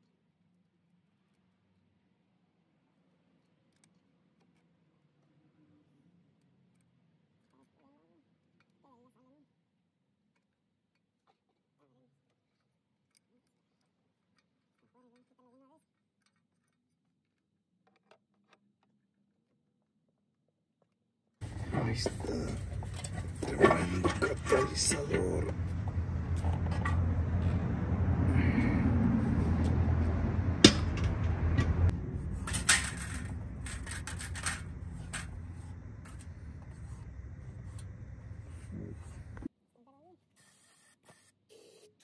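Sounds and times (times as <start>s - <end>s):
light metallic clicks and scrapes: 21.4s - 27.7s, 30.7s - 39.5s
low steady hum: 21.4s - 39.5s
faint clicks of parts handled: 32.2s - 37.9s.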